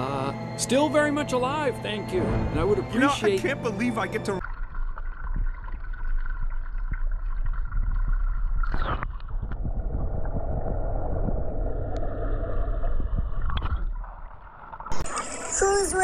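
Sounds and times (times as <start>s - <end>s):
muffled underwater rumble: 4.4s - 15.9s.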